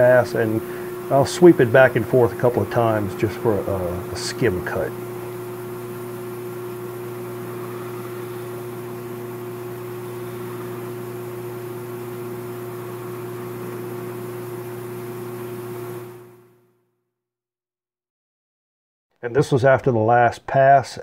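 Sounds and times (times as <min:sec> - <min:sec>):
lathe cutter skimming metal: 0:00.0 - 0:14.0
metal lathe humming: 0:00.0 - 0:16.5.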